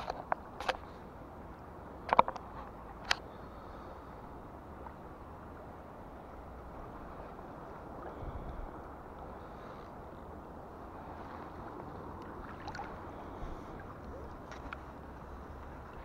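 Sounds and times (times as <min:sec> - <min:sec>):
river water rushing: 0:00.0 - 0:16.0
wind rumble on microphone: 0:04.1 - 0:16.0
faint ticks: 0:14.0 - 0:15.0.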